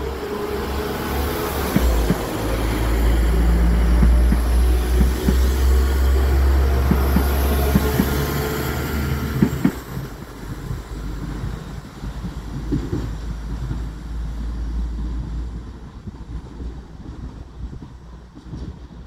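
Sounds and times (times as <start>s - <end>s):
diesel train rumbling past: 0.0s - 19.0s
wheels clicking over rail joints: 0.5s - 14.0s.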